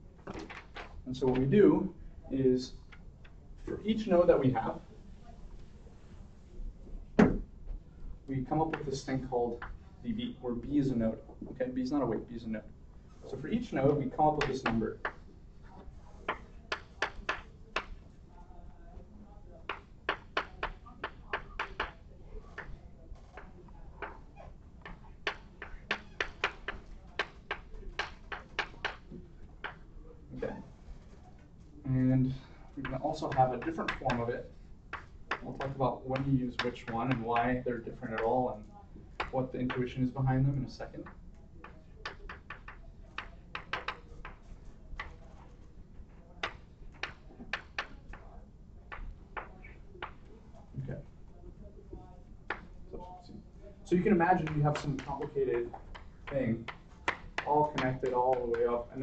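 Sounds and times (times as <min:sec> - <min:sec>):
chalk tapping on blackboard: 0:14.4 - 0:15.3, 0:16.2 - 0:18.0, 0:19.6 - 0:24.2, 0:24.8 - 0:29.8, 0:32.8 - 0:34.2, 0:34.9 - 0:37.5, 0:39.2 - 0:39.4, 0:41.0 - 0:45.5, 0:46.4 - 0:48.2, 0:48.9 - 0:50.3, 0:54.4 - 0:58.9.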